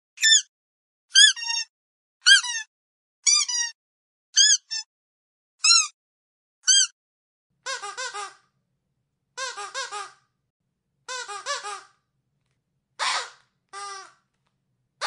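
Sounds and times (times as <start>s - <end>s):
squeaky dog toy squeaking: 0.2s - 0.5s, 1.1s - 3.8s, 4.4s - 4.9s, 5.6s - 6.0s, 6.6s - 7.0s, 7.6s - 8.4s, 9.4s - 10.2s, 11.1s - 12.0s, 13.0s - 14.2s.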